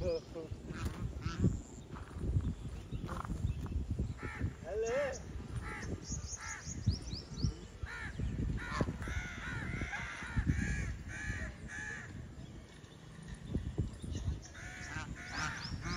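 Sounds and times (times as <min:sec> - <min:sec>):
geese honking: 0:14.6 - 0:15.9.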